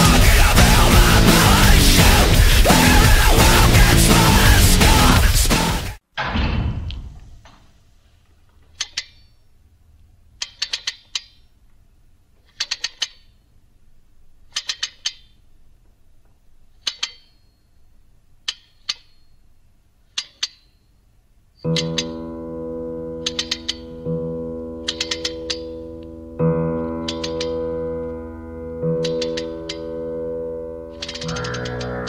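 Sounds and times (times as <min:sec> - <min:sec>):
guitar music: 0:00.0 - 0:06.0, 0:21.7 - 0:32.0
loud rock music: 0:00.0 - 0:06.0, 0:31.0 - 0:32.0.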